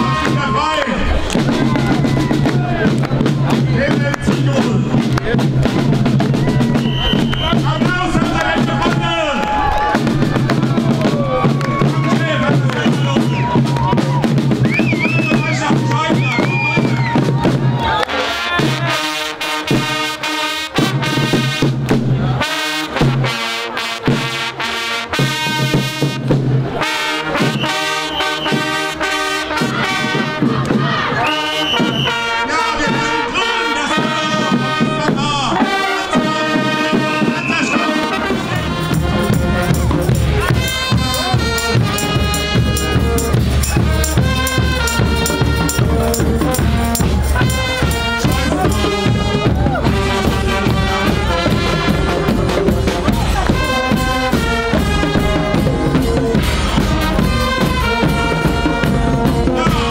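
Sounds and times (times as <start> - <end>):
brass and drum band: 0.0 - 59.9
music with heavy bass beat: 38.5 - 58.1.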